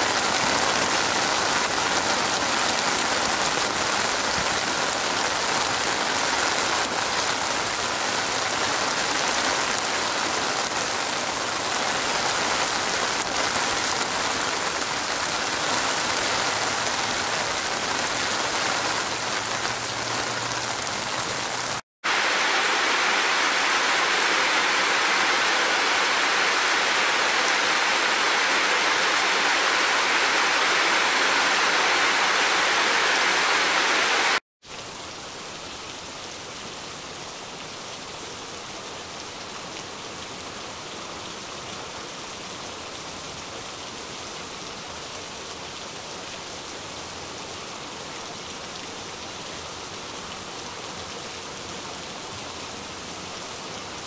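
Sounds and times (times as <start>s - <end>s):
steady rain falling: 0.0s - 54.0s.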